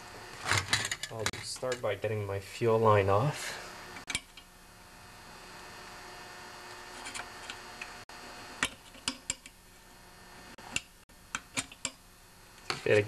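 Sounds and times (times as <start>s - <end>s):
small metallic clicks and taps: 8.6s - 9.6s, 10.6s - 12.0s.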